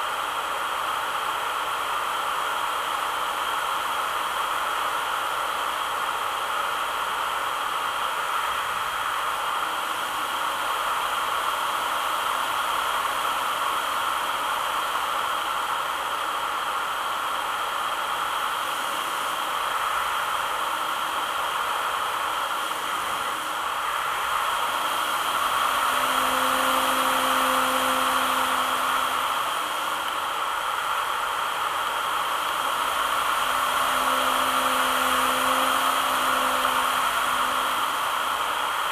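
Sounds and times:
model aircraft whirring: 0:00.6 - 0:38.9
low steady hum: 0:19.1 - 0:38.9.

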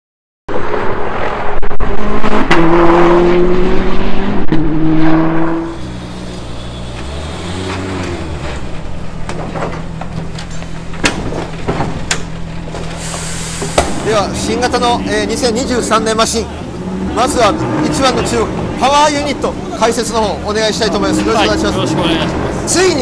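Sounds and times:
race car engine running: 0:00.8 - 0:13.0.

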